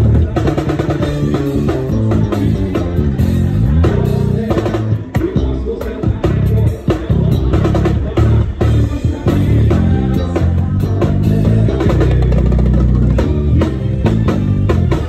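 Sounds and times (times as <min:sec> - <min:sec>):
bass guitar: 0:00.0 - 0:15.0
drum kit beat: 0:00.0 - 0:15.0
guitar: 0:00.0 - 0:15.0.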